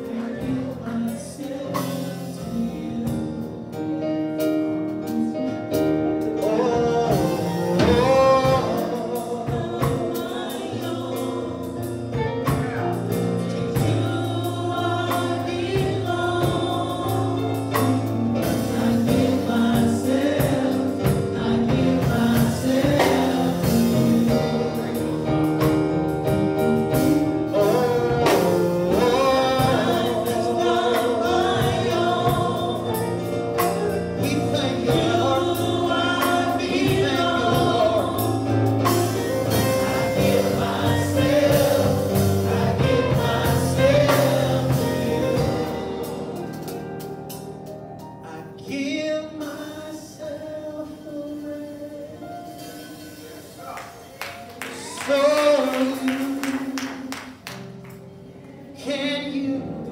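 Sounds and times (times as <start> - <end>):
man singing into a microphone: 0.0 - 4.0, 6.3 - 11.7, 27.5 - 33.2, 33.8 - 38.6, 48.2 - 53.0, 54.8 - 57.4, 58.8 - 59.9
choir singing: 0.0 - 47.6, 49.4 - 57.5, 58.2 - 59.9
instrumental accompaniment: 0.0 - 59.9.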